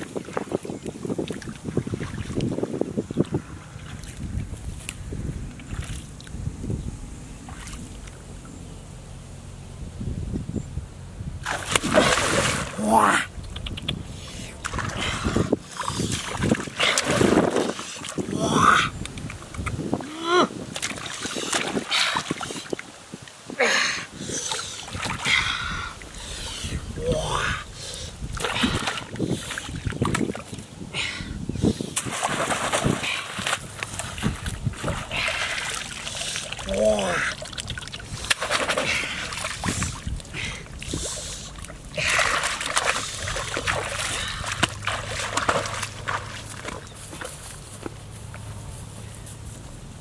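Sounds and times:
hands splashing in muddy water: 0:11.4 - 0:18.4, 0:20.6 - 0:22.9, 0:28.3 - 0:30.6, 0:31.9 - 0:47.4.

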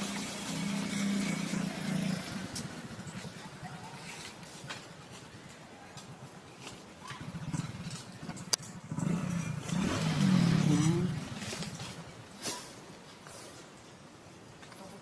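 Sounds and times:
vehicle engine passing: 0:00.0 - 0:03.6, 0:07.2 - 0:12.1.

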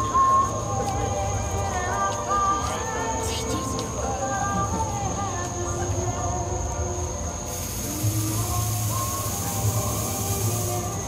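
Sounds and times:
thin high whine: 0:07.4 - 0:11.0.

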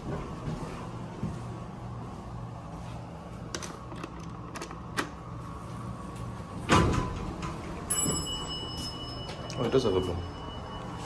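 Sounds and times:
footsteps: 0:00.0 - 0:03.9.

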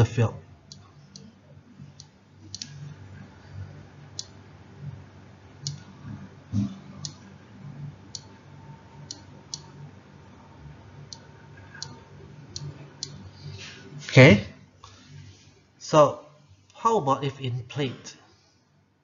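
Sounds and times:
computer mouse clicks: 0:02.0 - 0:02.8, 0:05.6 - 0:05.9, 0:06.6 - 0:07.2.

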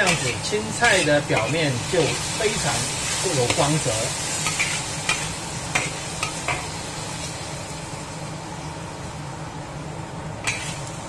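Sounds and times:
metal spatula scraping a wok: 0:00.0 - 0:06.6, 0:10.5 - 0:10.9
vegetables sizzling in a wok: 0:00.0 - 0:11.0.

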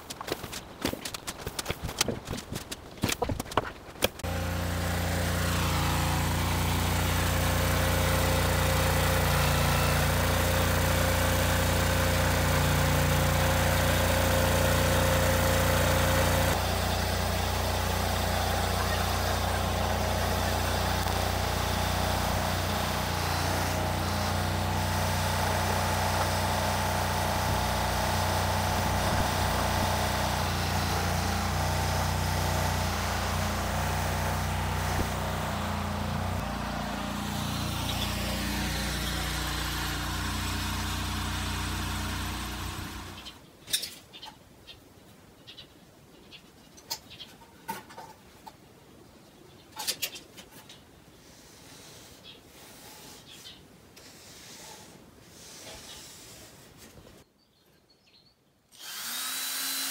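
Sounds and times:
small engine idling: 0:04.2 - 0:43.4, 0:58.8 - 0:59.9.

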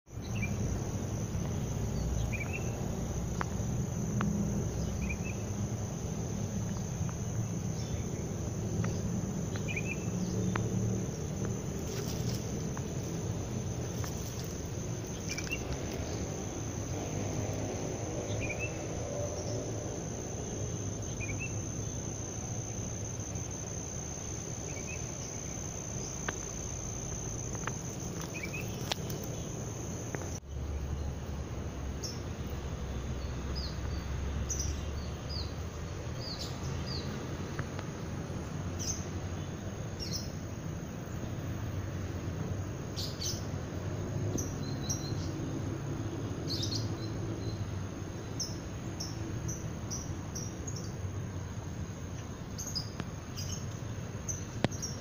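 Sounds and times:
high insect drone: 0:00.1 - 0:55.0
low background rumble: 0:00.2 - 0:35.2
bird chirp: 0:01.9 - 0:02.8, 0:07.7 - 0:10.7, 0:13.8 - 0:16.3, 0:28.1 - 0:29.6, 0:52.6 - 0:55.0.

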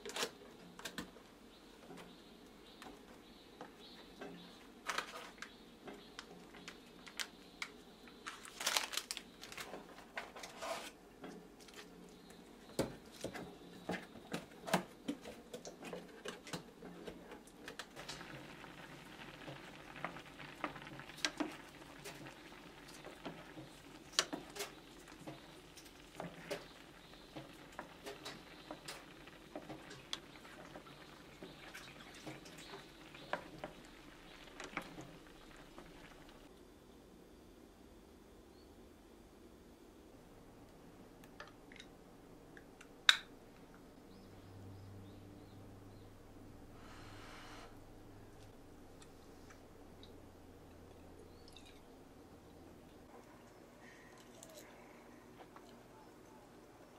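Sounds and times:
packaging rustling and crinkling: 0:08.2 - 0:11.0
wooden spatula stirring and tapping: 0:12.2 - 0:36.5
sauce simmering and bubbling: 0:15.6 - 0:36.5.

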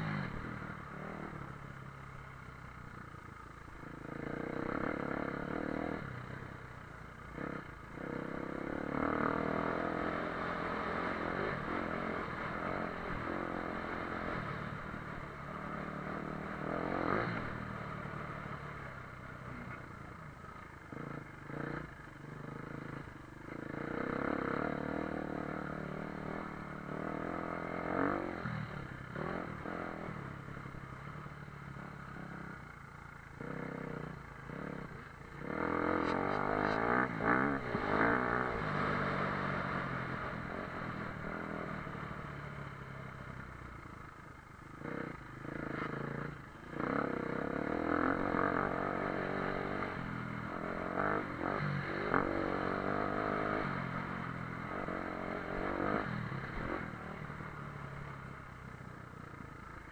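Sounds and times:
dirt bike engine revving: 0:07.3 - 0:18.8, 0:20.9 - 0:32.6, 0:33.4 - 0:42.2, 0:44.8 - 0:58.1.

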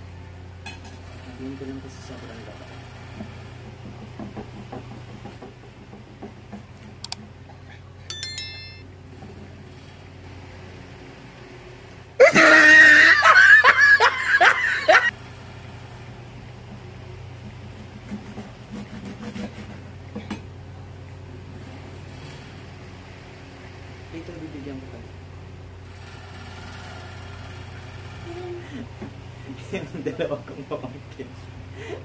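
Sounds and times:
child laughing: 0:12.2 - 0:15.1.

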